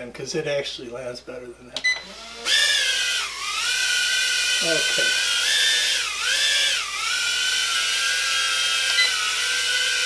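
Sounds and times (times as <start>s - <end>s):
quadcopter propellers whining: 2.0s - 10.0s.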